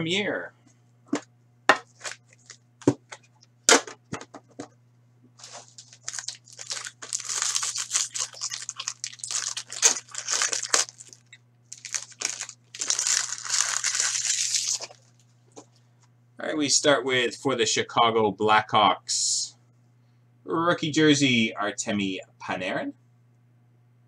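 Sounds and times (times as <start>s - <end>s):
foil pack tearing and crinkling: 5.4s - 15.1s.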